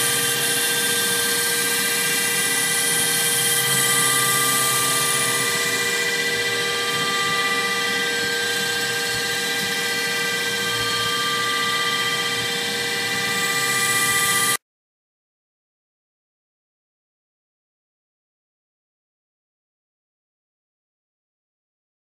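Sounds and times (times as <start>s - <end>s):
milling machine whine: 0.0s - 14.6s
rough metal cutting noise: 0.0s - 14.6s.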